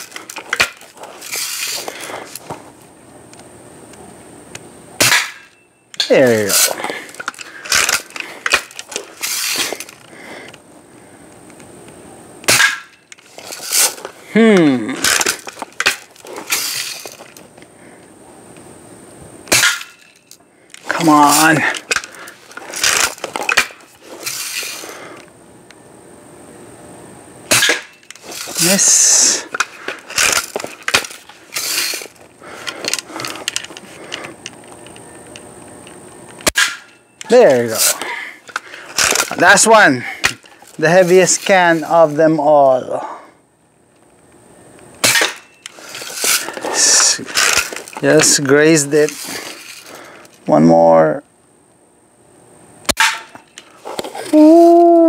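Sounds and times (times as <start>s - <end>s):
gun clicks and rattles: 6.6s - 10.6s, 21.7s - 25.3s, 29.5s - 36.4s, 45.6s - 50.4s.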